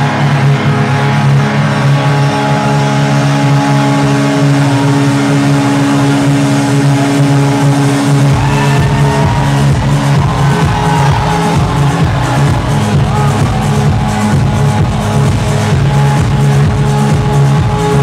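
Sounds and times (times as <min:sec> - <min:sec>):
loud techno music: 0:00.0 - 0:18.0.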